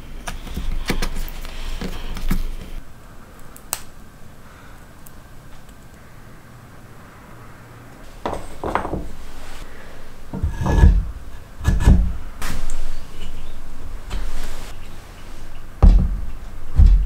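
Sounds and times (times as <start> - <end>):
heavy wooden knocks: 8.2 - 9.2, 10.3 - 12.2, 15.8 - 17.0
wood scraping against wood: 10.3 - 13.4.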